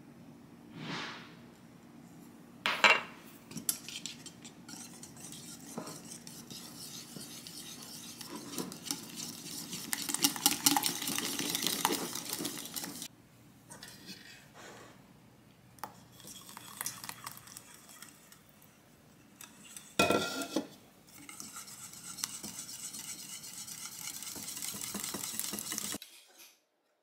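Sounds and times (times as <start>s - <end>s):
whisk clinking against bowl: 3.5s - 13.1s, 19.4s - 26.0s.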